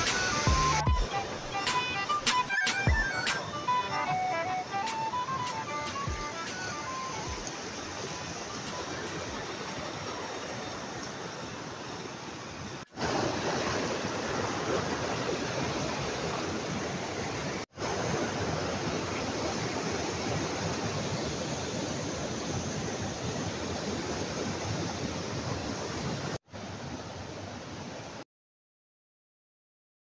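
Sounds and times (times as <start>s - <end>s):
stream rushing over boulders: 0.0s - 28.2s.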